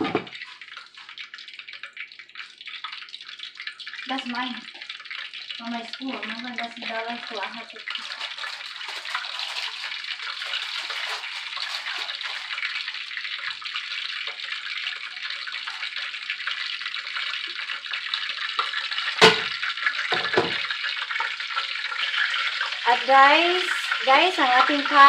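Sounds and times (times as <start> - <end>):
glass lid clanking: 0.0 - 0.4
hot oil hissing and crackling: 0.0 - 25.0.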